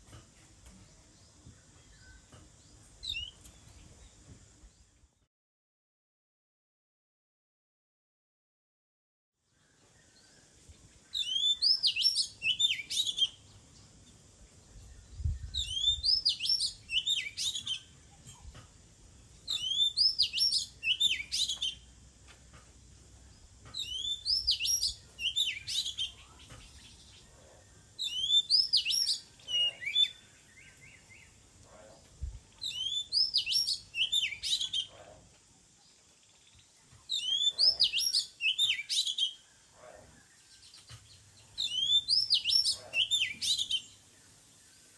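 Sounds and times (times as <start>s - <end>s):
bird singing whistled phrases: 11.1s - 13.4s, 15.4s - 17.9s, 19.5s - 21.8s, 23.8s - 26.4s, 28.0s - 31.0s, 32.6s - 34.9s, 37.1s - 39.4s, 41.6s - 43.9s.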